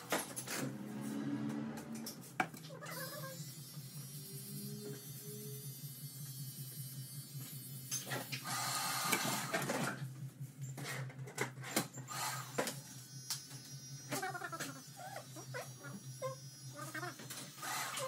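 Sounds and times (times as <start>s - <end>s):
electric hair trimmer humming: 2.9s - 7.6s.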